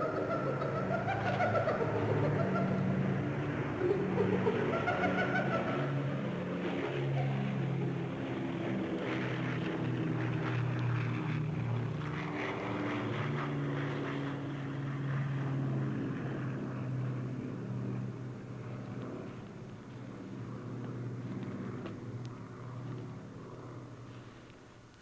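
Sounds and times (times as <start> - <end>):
engine drone: 0.0 - 25.0
light rustling and crackles: 18.7 - 25.0.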